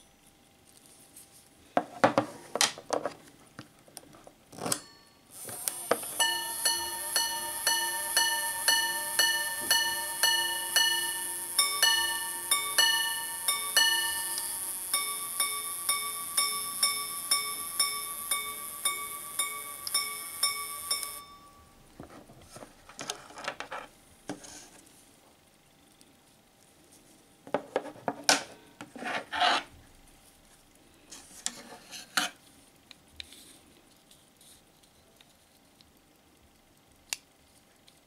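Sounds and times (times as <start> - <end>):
watch gongs striking: 6.2 - 21.3.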